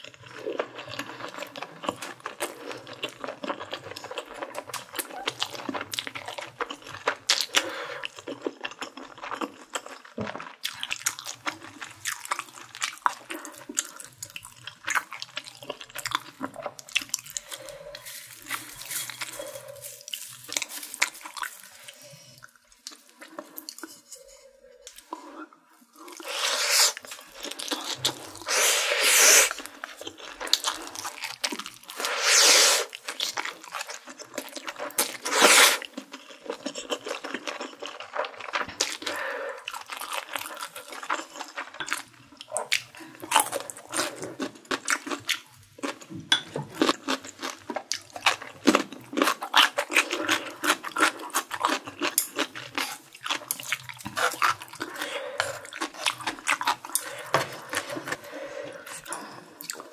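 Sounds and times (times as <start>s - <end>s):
loud noodle slurps: 26.2s - 27.1s, 28.4s - 29.6s, 32.0s - 33.0s, 35.2s - 35.9s
wet chewing with clicks: 39.8s - 58.2s.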